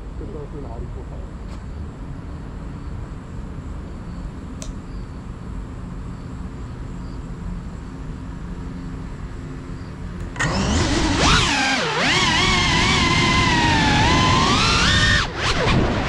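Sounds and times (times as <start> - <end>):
faint click: 4.6 - 4.8
drone motors whining: 9.8 - 16.0.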